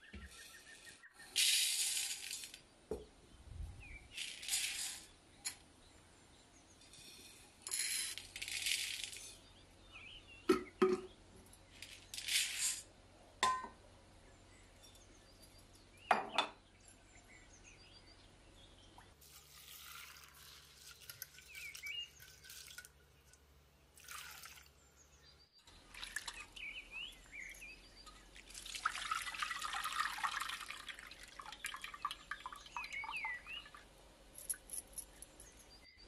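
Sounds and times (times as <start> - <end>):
water sloshing and pouring: 19.1 - 23.2, 23.9 - 24.8, 25.7 - 26.7, 28.0 - 33.8.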